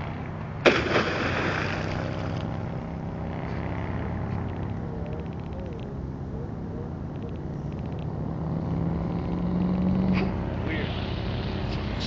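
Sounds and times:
low hum: 0.0s - 12.0s
person splashing into water: 0.6s - 2.4s.

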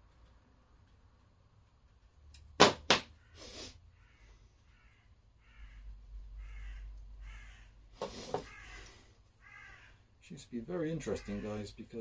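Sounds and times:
crow cawing: 3.1s - 10.1s, 10.9s - 11.8s.

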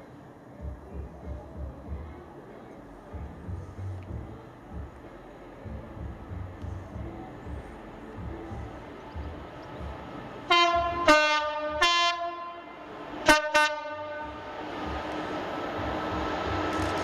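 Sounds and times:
locomotive engine and train noise: 0.0s - 17.0s
two-tone locomotive horn: 10.5s - 14.7s.

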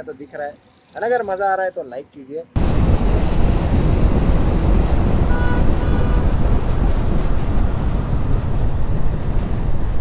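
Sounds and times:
wind rush on microphone: 2.6s - 10.0s.

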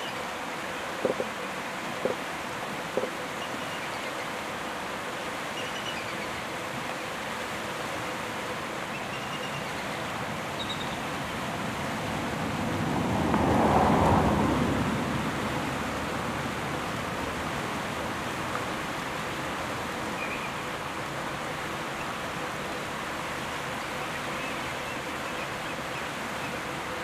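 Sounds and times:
creek water rushing over stones: 0.0s - 27.0s.

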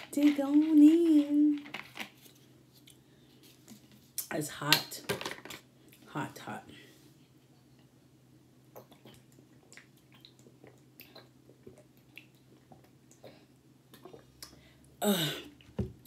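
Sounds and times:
person gulping water: 8.7s - 15.8s.

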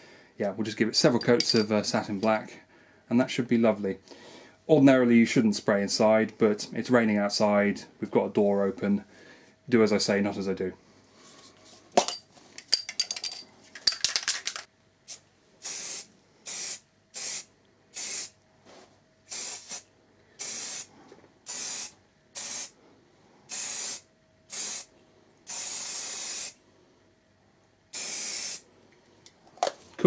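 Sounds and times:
spray can rattling: 12.6s - 14.7s
spray paint hissing: 15.1s - 18.4s, 19.3s - 19.8s, 20.4s - 20.9s, 21.5s - 22.8s, 23.5s - 24.9s, 25.5s - 26.6s, 27.9s - 28.6s.

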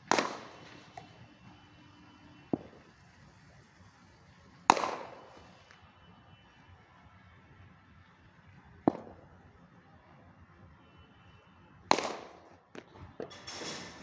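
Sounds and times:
cricket bat striking ball: 0.0s - 1.1s, 2.4s - 2.9s, 4.7s - 5.5s, 8.8s - 9.3s, 11.9s - 13.3s.

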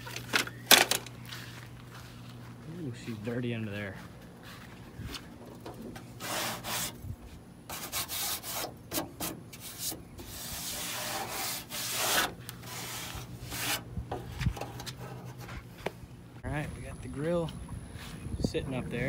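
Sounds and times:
hands scraping sheet metal: 6.0s - 7.0s, 7.7s - 15.9s.

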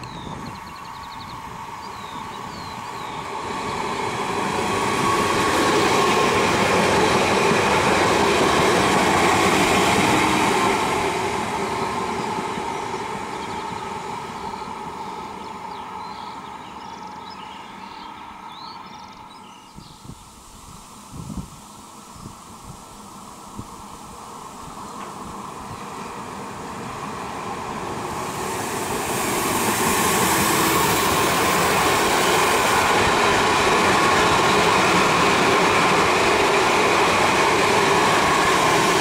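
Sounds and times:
train passing at speed: 0.0s - 39.0s
wheels on rail: 21.3s - 39.0s.

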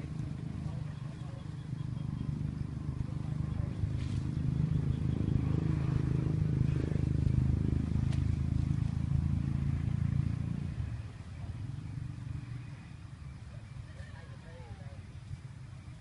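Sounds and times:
vehicle engine rumbling: 0.0s - 16.0s.

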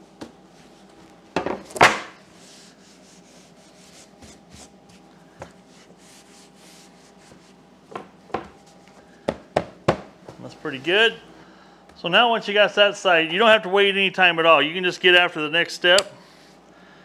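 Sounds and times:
gloved hands rubbing carpet: 2.3s - 7.7s.

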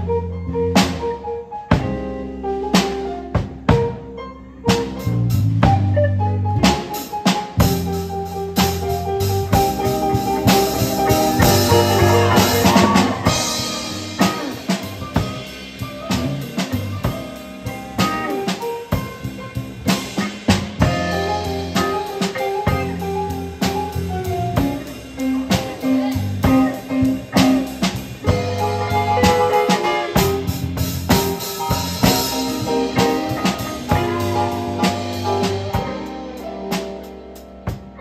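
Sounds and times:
drum kit: 0.0s - 38.0s
electric bass: 0.0s - 38.0s
keyboard: 0.0s - 38.0s
saxophone: 9.6s - 17.3s.

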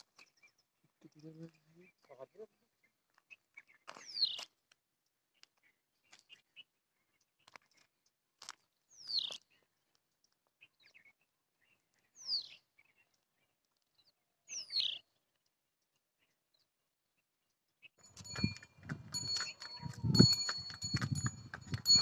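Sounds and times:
small ticks and chirps: 7.2s - 11.2s.

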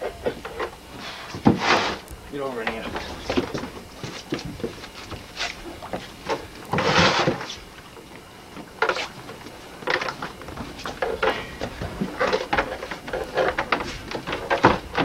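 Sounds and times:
gear knocking on boat deck: 8.7s - 15.0s.

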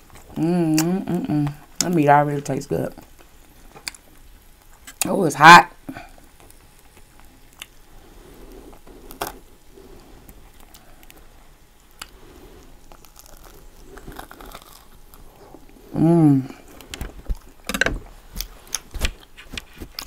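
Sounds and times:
crinkly rustling of food: 6.1s - 20.0s
biting into bread roll: 11.8s - 15.8s.

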